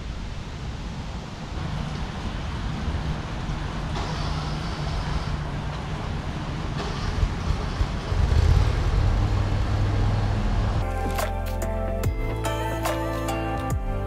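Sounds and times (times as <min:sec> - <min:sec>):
outdoor rumble: 0:00.0 - 0:12.4.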